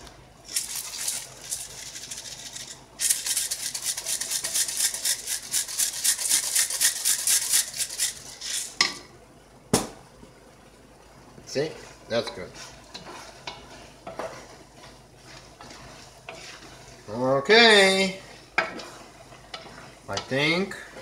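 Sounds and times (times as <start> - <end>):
herbs rattling in shaker jar: 0.5 - 8.7.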